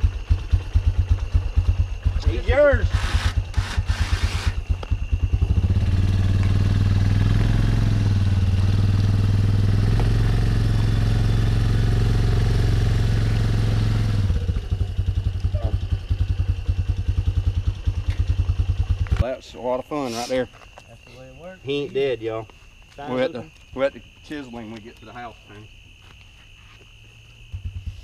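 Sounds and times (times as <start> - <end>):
engine idling and revving: 0.0 - 19.4.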